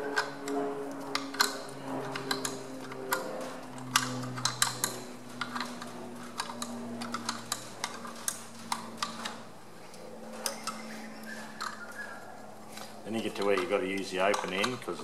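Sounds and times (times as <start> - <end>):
spanner clicking against bolt: 0.1 - 9.4, 13.2 - 15.0.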